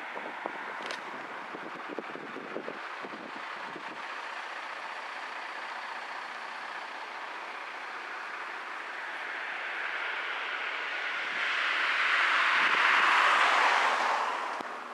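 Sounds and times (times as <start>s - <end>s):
road traffic noise: 0.0s - 14.9s
truck running: 0.0s - 14.9s.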